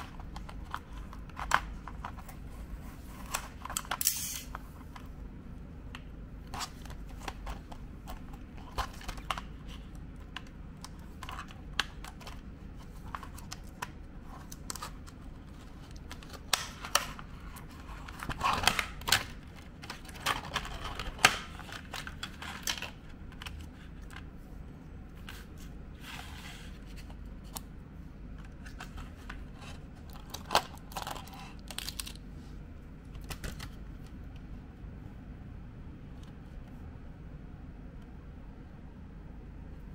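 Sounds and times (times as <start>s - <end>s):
plastic packaging clicks and crinkles: 30.0s - 32.2s.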